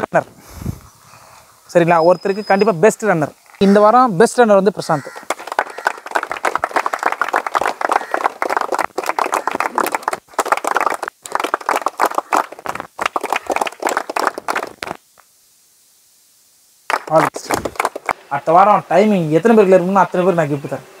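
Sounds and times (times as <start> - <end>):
group applauding: 5.0 - 15.0, 16.9 - 18.3.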